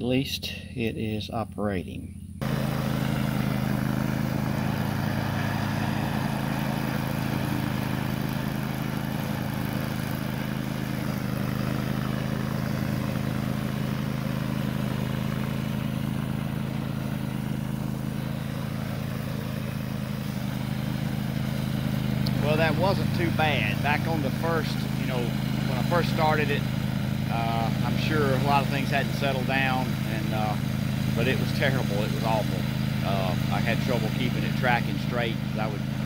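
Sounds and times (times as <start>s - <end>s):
riding mower engine droning: 0.0s - 36.0s.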